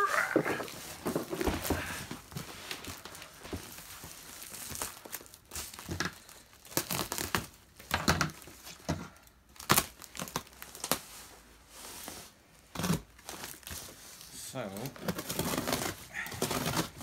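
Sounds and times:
packaging crinkling and tearing: 0.0 - 11.2, 12.7 - 17.0.

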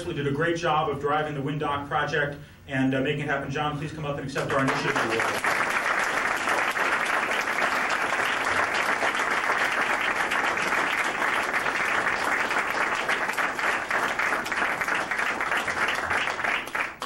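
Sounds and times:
audience applauding: 4.5 - 17.0.

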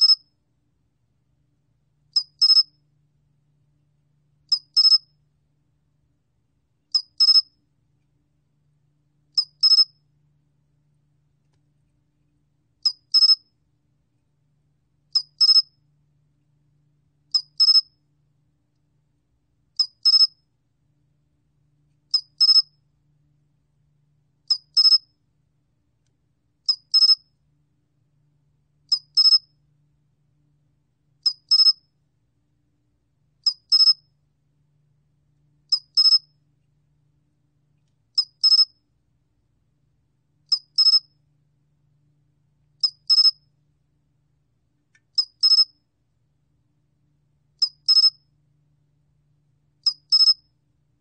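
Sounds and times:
cricket chirping: 2.2 - 2.8, 4.5 - 5.1, 6.9 - 7.5, 9.4 - 9.9, 12.8 - 13.4, 15.2 - 15.7, 17.3 - 17.9, 19.8 - 20.4, 22.1 - 22.7, 24.5 - 25.1, 28.9 - 29.4, 33.4 - 34.0, 35.7 - 36.3, 38.2 - 38.8, 40.5 - 41.1, 42.8 - 43.4, 45.2 - 45.8, 47.6 - 48.2, 49.8 - 50.5.

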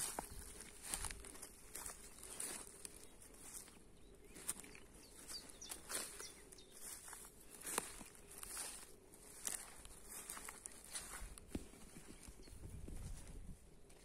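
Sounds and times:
footsteps in grass: 0.0 - 14.0
faint bird chirps: 1.7 - 8.7.

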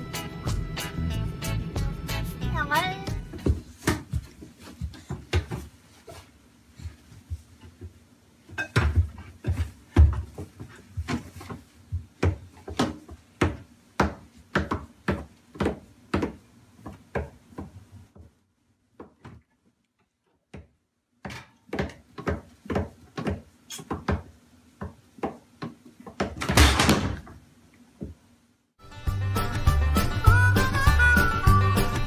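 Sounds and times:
pots and lids clattering: 8.5 - 9.0.

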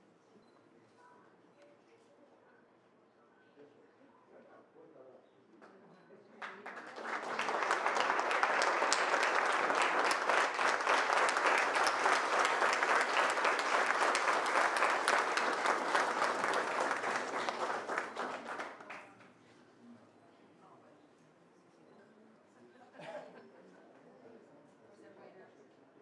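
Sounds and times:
audience applauding: 6.4 - 19.1.

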